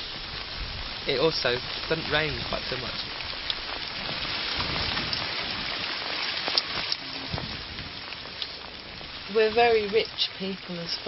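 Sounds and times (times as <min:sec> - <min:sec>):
rain falling: 0:00.0 - 0:11.0
drip ticks: 0:03.0 - 0:03.7, 0:06.5 - 0:07.0, 0:08.1 - 0:08.6.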